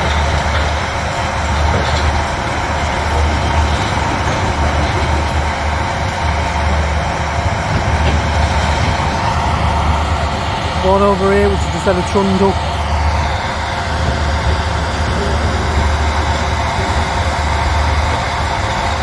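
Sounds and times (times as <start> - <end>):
excavator diesel rumble: 0.0 - 19.0.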